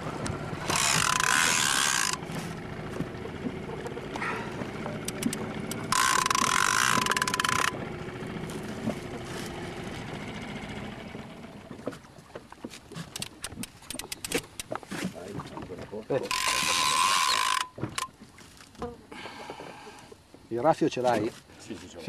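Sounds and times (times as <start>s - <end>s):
boat engine running: 0.0s - 20.5s
fishing reel ratchet clicking: 0.6s - 2.2s, 5.0s - 7.8s, 13.1s - 14.7s, 16.2s - 18.1s.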